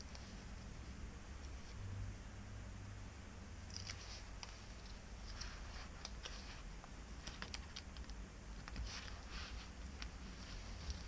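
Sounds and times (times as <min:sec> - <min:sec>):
adhesive tape crinkling and clicking: 0:07.2 - 0:09.2.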